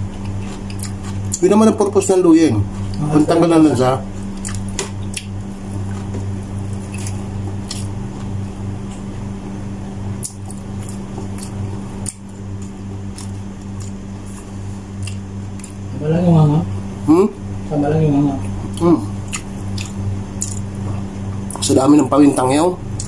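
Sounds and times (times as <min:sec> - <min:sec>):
steady low hum: 0:00.0 - 0:23.0
chewing with wet mouth clicks: 0:00.1 - 0:01.4, 0:04.3 - 0:09.1, 0:10.2 - 0:15.8, 0:18.4 - 0:21.7.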